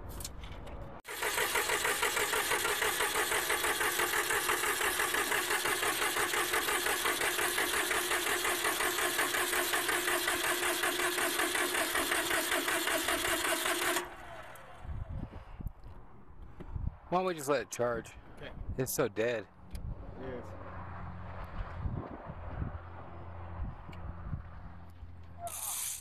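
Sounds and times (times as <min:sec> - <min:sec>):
starter motor cranking diesel engine: 0:01.0 - 0:14.8.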